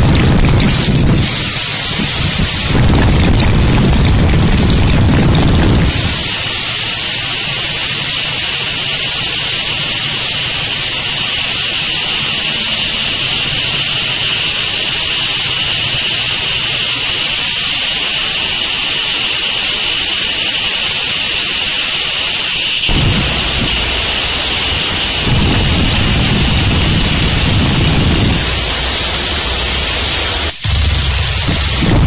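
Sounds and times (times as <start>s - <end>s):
heavy low rumble: 0.0s - 7.7s, 9.7s - 16.3s, 22.9s - 32.0s
harsh static hiss: 0.0s - 32.0s
thin steady whine: 0.0s - 32.0s.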